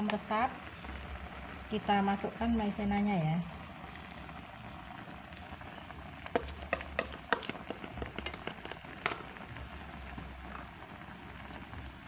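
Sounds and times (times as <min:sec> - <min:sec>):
syrup boiling and bubbling: 0:00.0 - 0:12.0
bubbles popping and crackling: 0:06.3 - 0:12.0.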